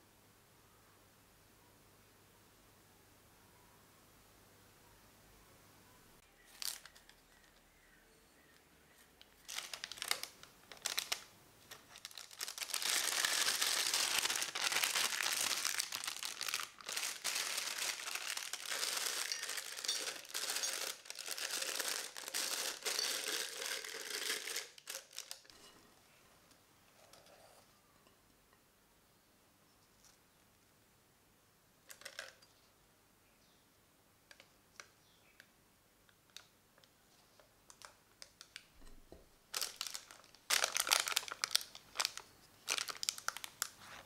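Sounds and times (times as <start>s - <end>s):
plastic bag crinkling: 6.5s - 7.6s, 9.2s - 25.7s, 39.5s - 44.0s.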